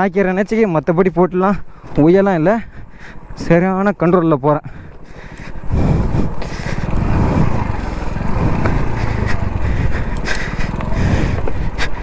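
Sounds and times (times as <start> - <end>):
motorcycle engine running under load: 5.5 - 12.0
motorcycle rattling over stones: 6.3 - 12.0.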